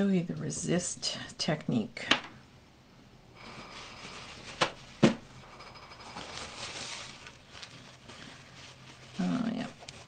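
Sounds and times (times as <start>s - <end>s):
rubbing and scraping of craft materials: 3.4s - 10.0s.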